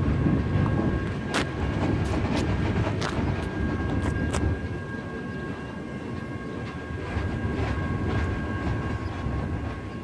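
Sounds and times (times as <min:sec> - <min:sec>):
freight train rumble: 0:00.0 - 0:10.0.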